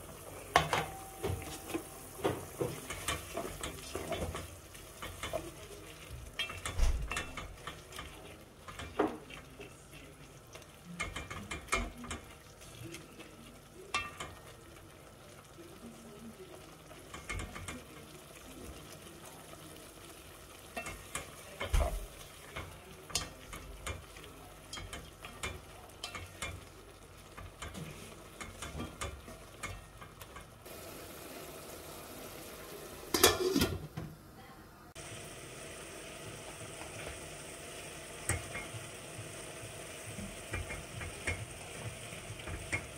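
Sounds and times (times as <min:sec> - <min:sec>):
food sizzling in a pan: 0:00.0 - 0:42.9
steel lid clattering onto pan: 0:33.1 - 0:33.8.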